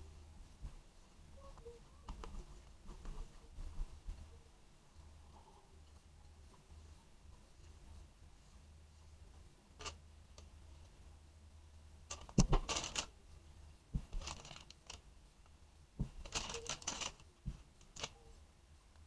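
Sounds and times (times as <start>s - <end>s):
plastic crinkling: 12.1s - 13.1s, 14.0s - 15.0s, 16.0s - 18.3s.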